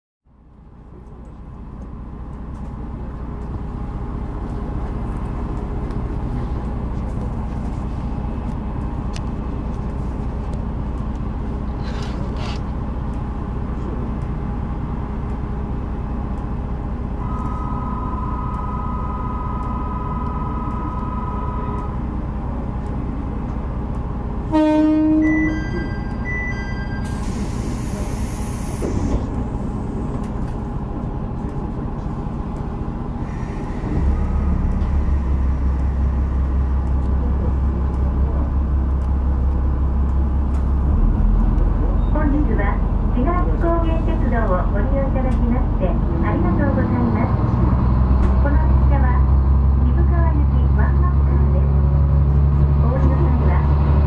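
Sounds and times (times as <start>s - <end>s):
diesel railcar idling: 0.3s - 54.0s
two-note electronic tone: 17.2s - 21.9s
train horn blast: 24.5s - 25.5s
air hissing: 27.1s - 29.3s.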